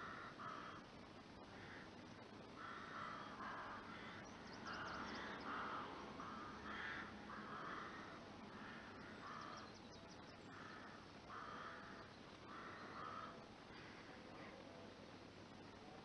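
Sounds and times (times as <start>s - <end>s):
faint crow cawing: 0.0s - 9.8s, 10.4s - 14.6s.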